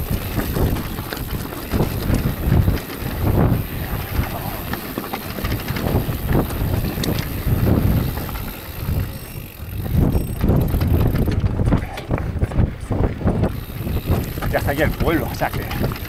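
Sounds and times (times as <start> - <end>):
tyres crunching over stones: 0.0 - 12.2
bike knocks and rattles: 0.0 - 16.0.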